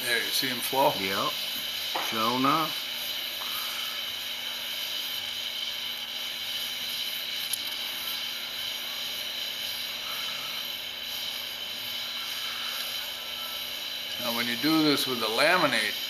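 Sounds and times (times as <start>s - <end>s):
gas torch hissing: 0.0s - 16.0s.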